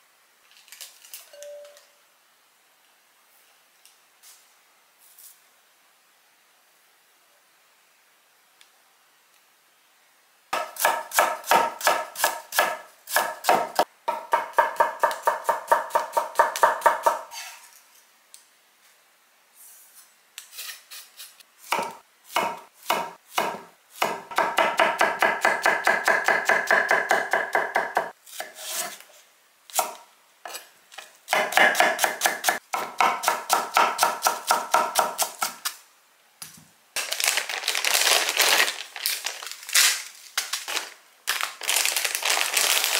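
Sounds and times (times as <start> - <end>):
plastic package crinkling: 0.5 - 1.3, 37.0 - 42.9.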